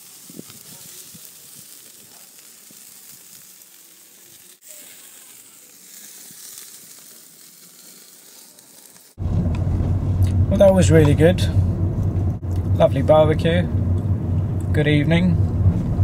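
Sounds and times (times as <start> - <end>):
skewers sizzling on grill: 0.0 - 16.0.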